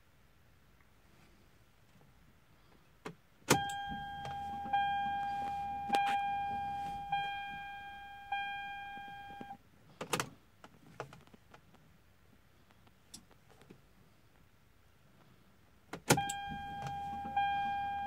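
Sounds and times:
ignition key click: 0:03.5 - 0:07.8, 0:16.0 - 0:17.7
dashboard warning chime: 0:03.5 - 0:09.6, 0:16.1 - 0:18.0
faint low hum: 0:03.5 - 0:09.7.

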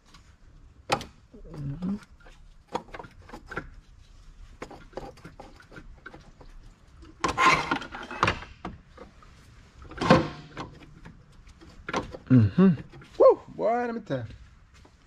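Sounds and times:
rough scraping: 0:03.2 - 0:08.2.

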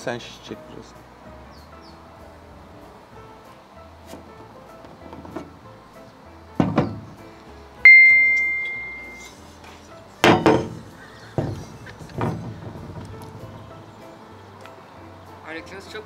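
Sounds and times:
hard objects knocking on glass table: 0:06.6 - 0:07.0, 0:10.2 - 0:13.1
ding sound effect: 0:07.9 - 0:09.3
metal cylinder knocking on table: 0:10.2 - 0:10.8.

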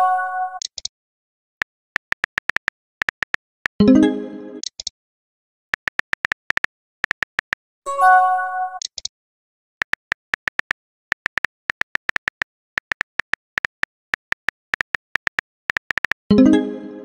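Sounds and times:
phone keyboard tapping clicks: 0:02.0 - 0:03.8, 0:05.8 - 0:07.6, 0:09.8 - 0:16.3.

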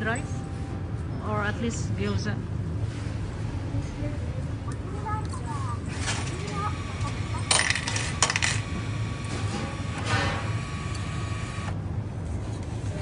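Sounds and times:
coin rattle: 0:07.5 - 0:08.7
coins clinking into machine: 0:07.5 - 0:08.7.

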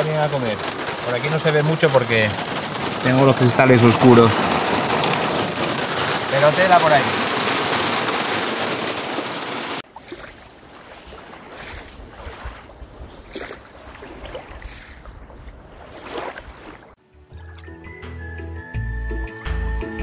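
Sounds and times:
hail and rain drumming on car roof: 0:00.0 - 0:09.8
small waves lapping: 0:00.0 - 0:17.0
wind rumble on microphone: 0:10.4 - 0:17.0
music: 0:17.0 - 0:20.0.

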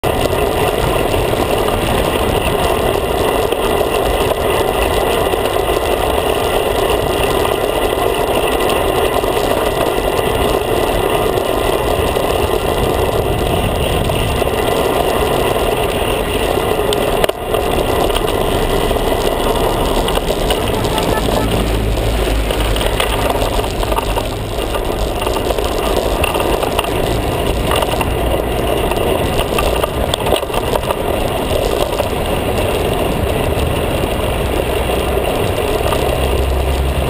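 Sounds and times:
wind and road noise: 0:00.0 - 0:37.0
cars passing close by: 0:15.3 - 0:30.5.

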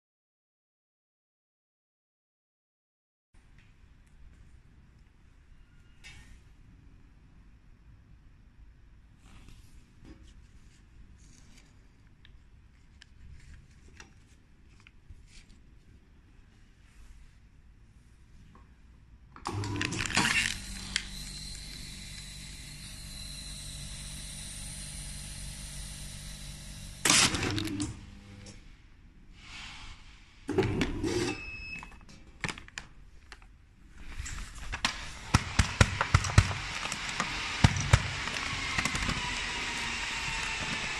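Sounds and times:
plastic bag crinkling: 0:19.8 - 0:21.2, 0:32.4 - 0:39.4.

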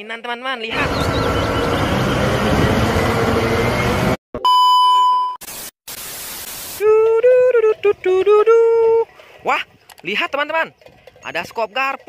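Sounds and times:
electronic beep: 0:04.4 - 0:05.4
static hiss bursts: 0:05.4 - 0:06.9.

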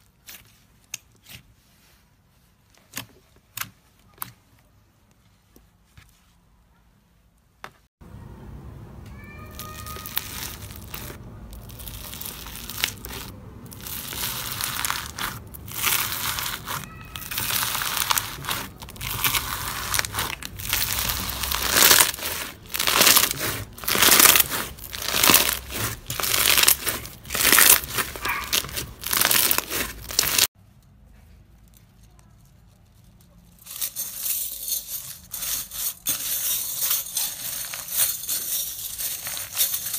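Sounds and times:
foam-bead slime crackling: 0:09.2 - 0:30.6.

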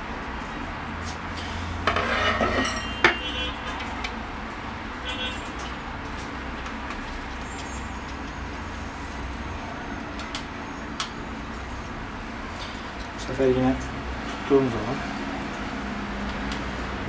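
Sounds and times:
steel rods clinking and scraping: 0:01.4 - 0:04.0.

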